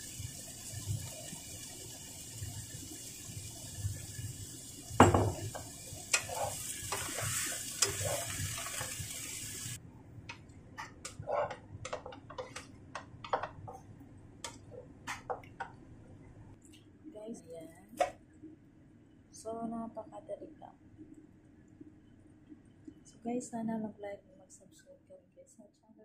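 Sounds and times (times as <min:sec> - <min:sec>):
vegetables sizzling in frying pan: 0:00.0 - 0:09.8
utensil scraping and tapping pan: 0:10.8 - 0:13.8.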